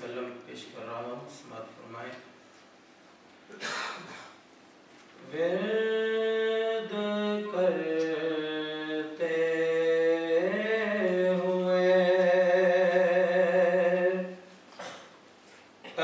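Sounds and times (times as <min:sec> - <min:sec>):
man chanting melodically: 0:05.2 - 0:14.5.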